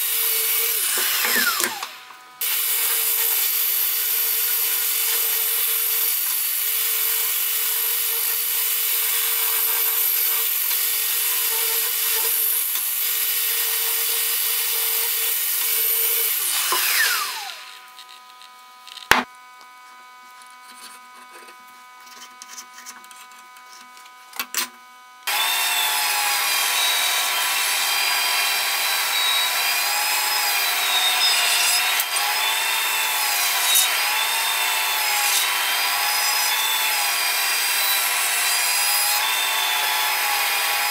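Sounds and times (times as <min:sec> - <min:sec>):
bandsaw cutting wood: 0:00.0 - 0:18.2, 0:25.2 - 0:40.9
orbital sander running on steel: 0:00.0 - 0:19.2, 0:25.3 - 0:40.9.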